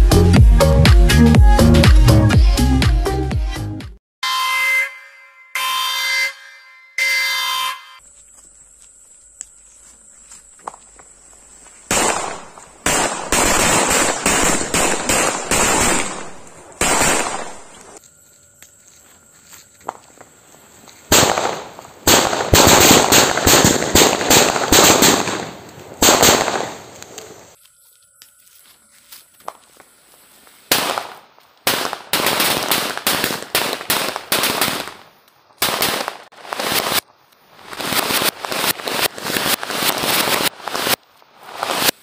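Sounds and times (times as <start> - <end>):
firecrackers exploding: 11.9 - 18.0, 21.1 - 27.6, 30.7 - 42.0.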